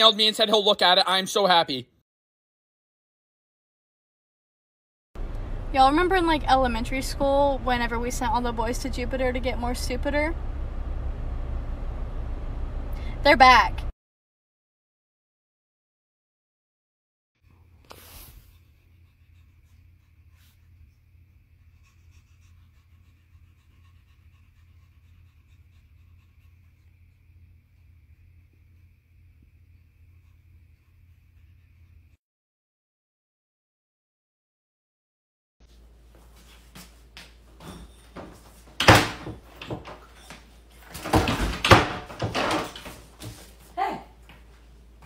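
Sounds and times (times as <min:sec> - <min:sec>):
low steady hum: 0:05.2 - 0:13.9
cat panting: 0:18.3 - 0:28.2
knocks and shuffles: 0:35.7 - 0:45.0
wooden door banging shut: 0:38.8 - 0:40.0, 0:40.9 - 0:43.0.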